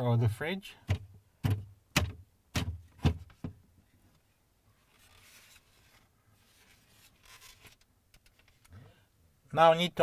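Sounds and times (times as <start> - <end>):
plastic divider knocking: 0.9 - 3.6
plastic scraping and rubbing: 4.8 - 8.7.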